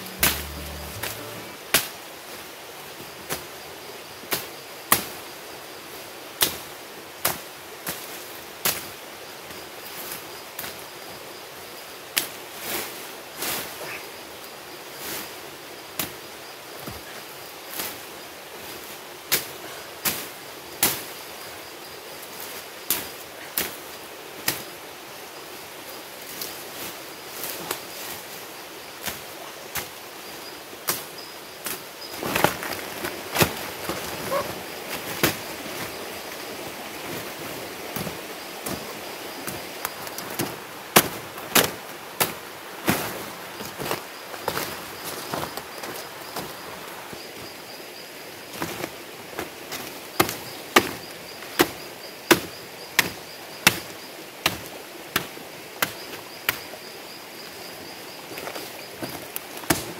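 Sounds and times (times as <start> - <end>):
blade chopping undergrowth: 40.1 - 43.2, 59.0 - 59.9.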